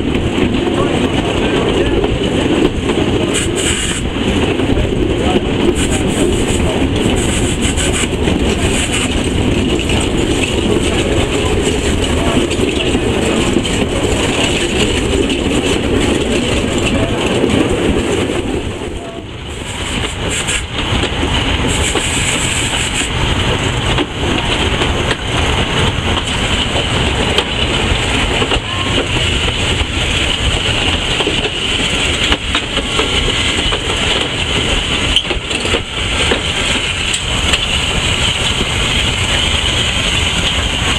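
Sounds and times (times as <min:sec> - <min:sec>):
rail clatter: 0:00.0 - 0:40.9
steam locomotive hiss: 0:03.2 - 0:04.4, 0:05.5 - 0:09.4, 0:18.6 - 0:20.9, 0:21.6 - 0:23.2.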